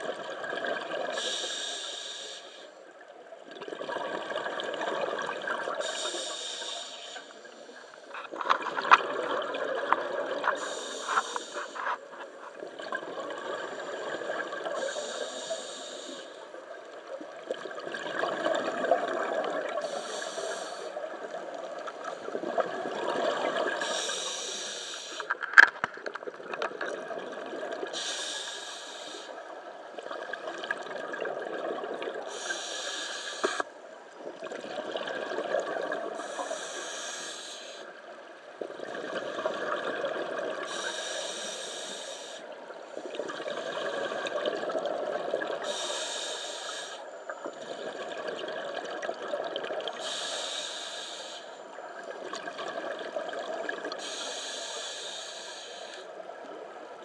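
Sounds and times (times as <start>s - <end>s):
regulator breathing hiss: 1.1s - 2.8s, 5.8s - 8.2s, 10.6s - 12.5s, 14.8s - 16.4s, 19.8s - 21.0s, 23.8s - 25.4s, 27.9s - 29.5s, 32.3s - 33.8s, 36.2s - 38.0s, 40.6s - 42.6s, 45.6s - 47.1s, 50.0s - 51.6s, 54.0s - 56.2s.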